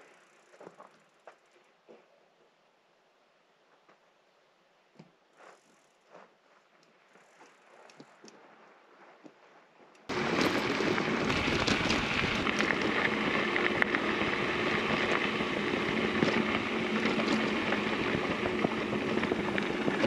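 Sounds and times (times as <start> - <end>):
wind rushing over microphone: 10.1 - 20.0.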